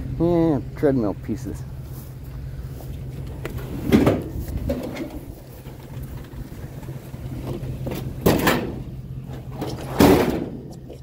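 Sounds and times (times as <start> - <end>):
vehicle engine idling: 0.0 - 11.0
loud clunks of equipment: 3.5 - 5.2, 7.4 - 10.7.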